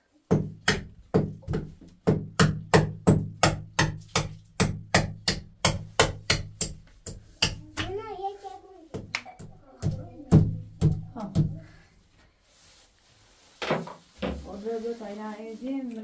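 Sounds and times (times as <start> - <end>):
hammer knocking nail into wood: 0.3 - 7.9.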